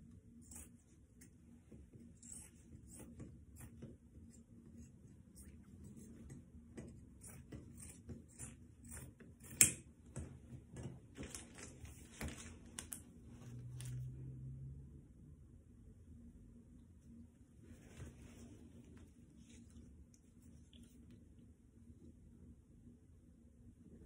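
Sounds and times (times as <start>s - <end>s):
fabric rustling: 17.6s - 19.9s.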